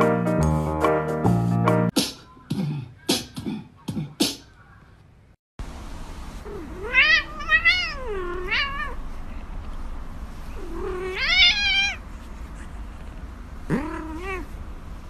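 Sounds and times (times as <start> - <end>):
cat meowing: 6.5 - 9.0, 10.6 - 12.0, 13.7 - 14.6.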